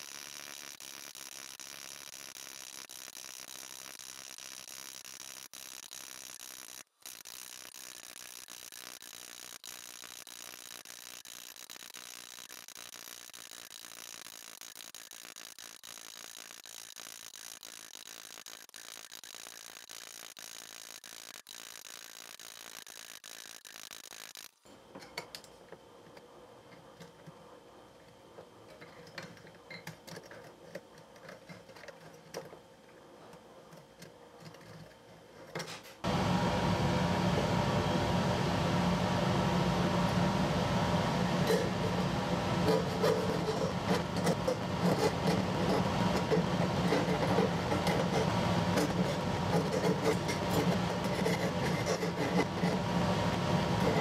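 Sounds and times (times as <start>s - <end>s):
jeweller's saw buzzing: 0.0s - 24.6s, 41.3s - 54.0s.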